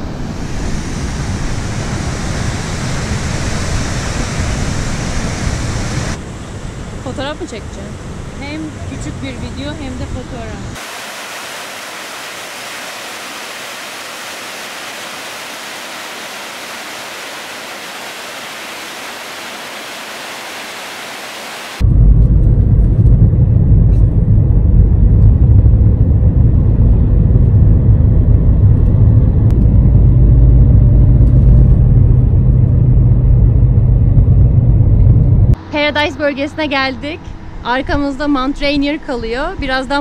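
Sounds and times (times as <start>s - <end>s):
waterfall rushing: 10.8s - 21.8s
car driving heard from inside: 21.8s - 37.6s.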